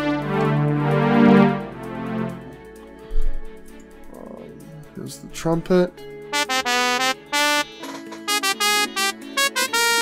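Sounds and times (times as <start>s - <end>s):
sampled trumpet notes: 6.3s - 10.0s.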